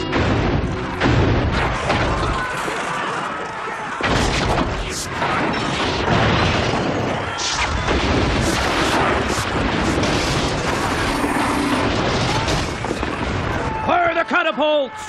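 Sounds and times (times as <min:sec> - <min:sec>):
sharp impacts: 0:00.0 - 0:02.6
cartoon explosions: 0:00.0 - 0:03.1, 0:04.0 - 0:13.9.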